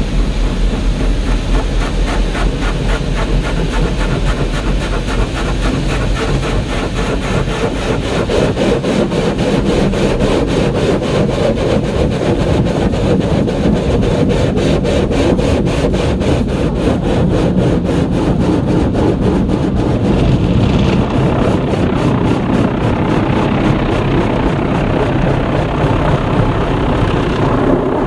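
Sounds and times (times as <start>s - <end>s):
car wash brushes scrubbing car: 0.1s - 22.7s.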